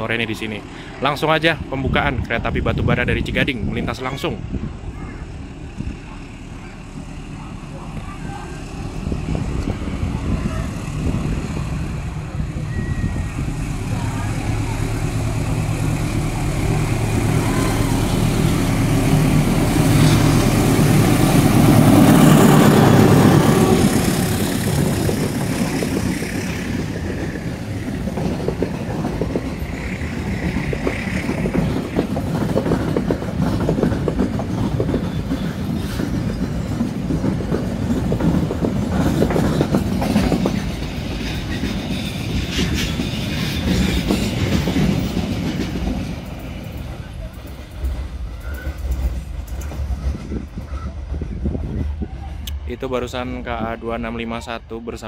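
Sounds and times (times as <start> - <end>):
diesel locomotive engine: 0.0 - 55.0
train wheels clattering over rail joints: 14.5 - 51.3.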